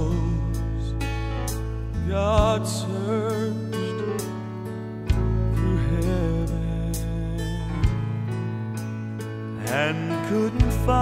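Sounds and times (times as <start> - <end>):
man singing with vibrato: 0.0 - 1.1, 2.0 - 4.2, 5.5 - 8.0, 9.6 - 11.0
piano and band accompaniment: 0.0 - 11.0.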